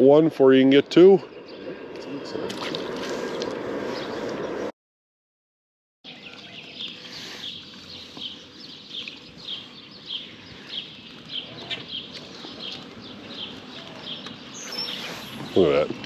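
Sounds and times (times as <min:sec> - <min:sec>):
bird chirping: 0:00.0 - 0:04.6, 0:06.1 - 0:16.0.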